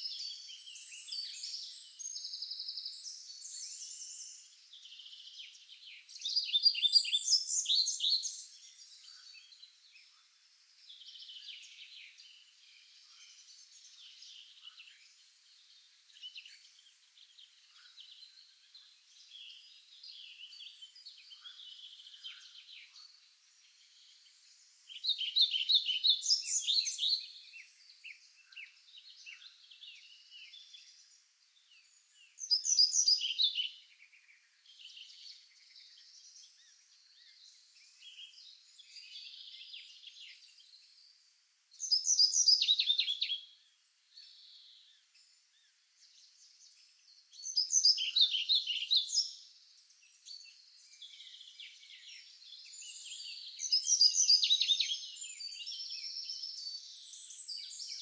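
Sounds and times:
faint bird chirping: 0.0 - 58.0.

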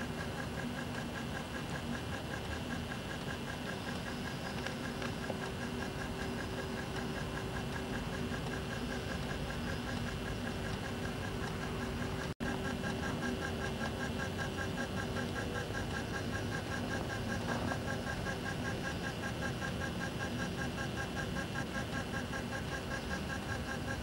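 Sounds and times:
steady hum and hiss: 0.0 - 24.0.

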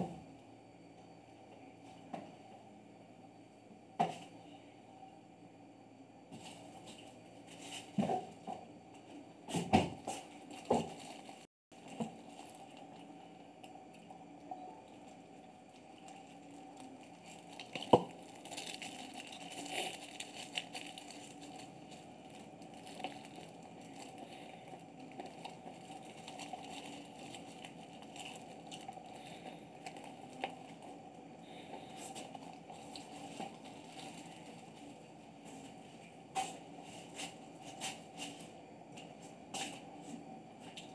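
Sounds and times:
cats chewing and crunching: 10.0 - 14.2, 15.0 - 35.8.

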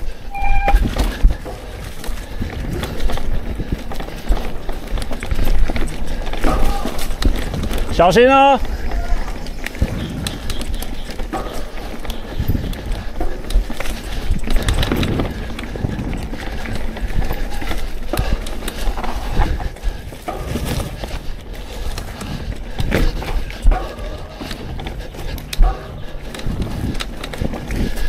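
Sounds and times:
bike rattling over bumps: 0.0 - 28.0
tyres crunching over leaves: 0.7 - 19.4
wind on microphone: 8.7 - 28.0.

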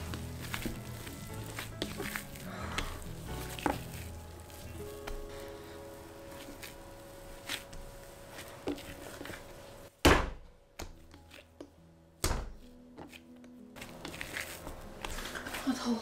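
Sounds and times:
dough thrown down thunk: 10.0 - 10.5.

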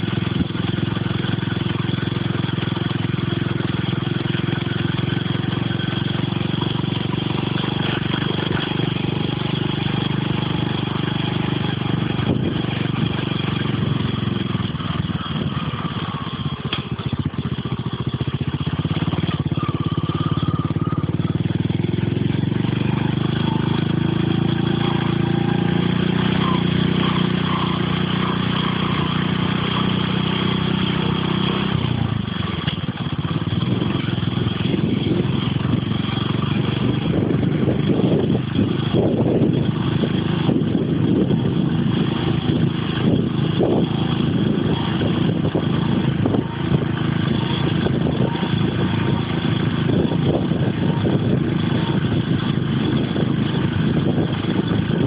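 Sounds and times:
vehicle engine running: 0.0 - 55.0
wind buffeting microphone: 5.5 - 17.7, 31.8 - 55.0.

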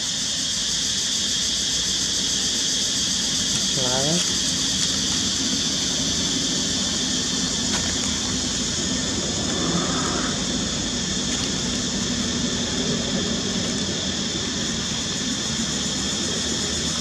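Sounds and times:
high-pitched shrill hiss: 0.0 - 7.7.

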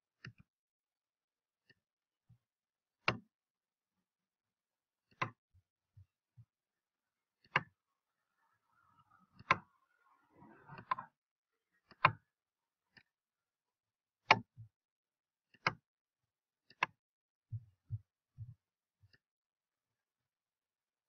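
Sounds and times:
computer mouse clicking: 9.4 - 9.7, 10.5 - 11.1.

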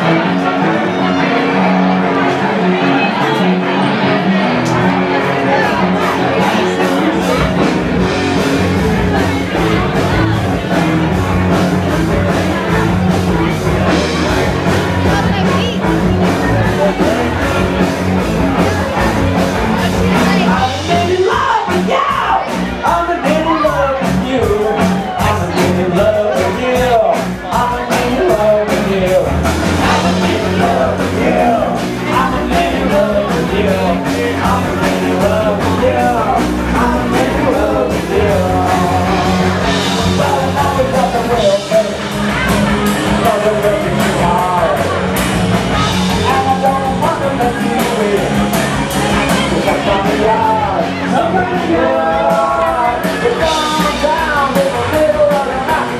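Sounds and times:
cello rock band playing: 0.0 - 55.9
sung and shouted vocals: 19.8 - 45.2, 45.8 - 55.9.

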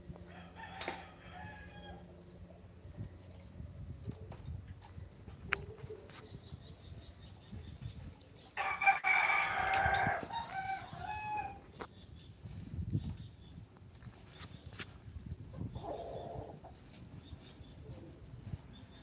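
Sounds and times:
rooster crowing: 0.3 - 2.1, 8.6 - 11.6.

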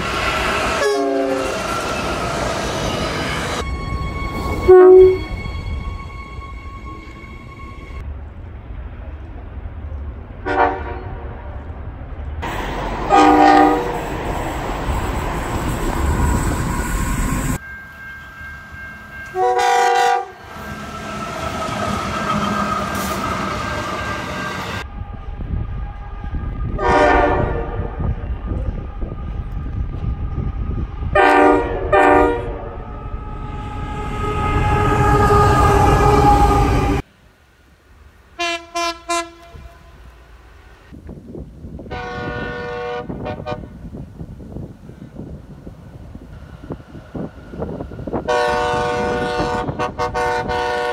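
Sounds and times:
low rumble of passing trains: 0.0 - 50.9
locomotive air horn blasts: 0.7 - 1.6, 3.6 - 7.5, 10.4 - 11.3, 13.1 - 14.0, 17.8 - 24.8, 26.7 - 28.0, 31.1 - 37.0, 38.4 - 40.1, 41.9 - 43.8, 48.3 - 50.9.

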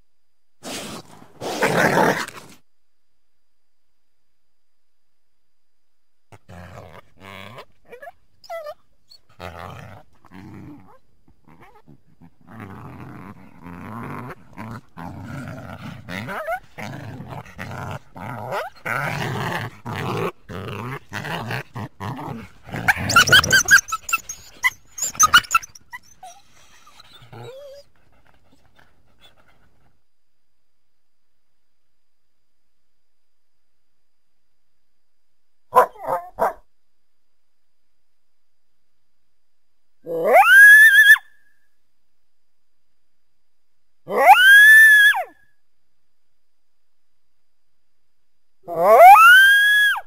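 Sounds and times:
coyotes growling and snarling: 0.6 - 2.6, 6.3 - 30.0, 40.0 - 41.0, 44.1 - 45.3, 48.6 - 49.4
coyotes whining: 6.3 - 29.9, 40.0 - 41.6, 44.1 - 45.5, 48.7 - 50.0
coyotes yelping: 22.7 - 27.9, 40.1 - 41.4, 44.1 - 45.4, 48.7 - 50.0.

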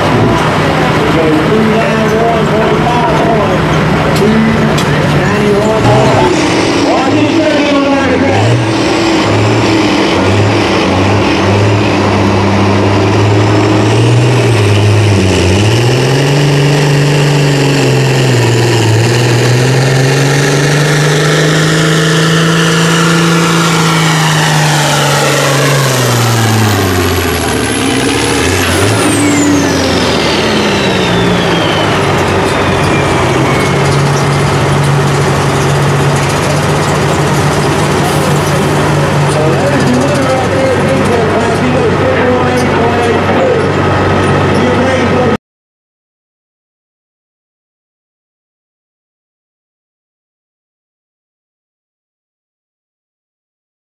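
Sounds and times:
diesel truck engine revving: 0.0 - 45.4
turbo whistle: 29.7 - 34.2.

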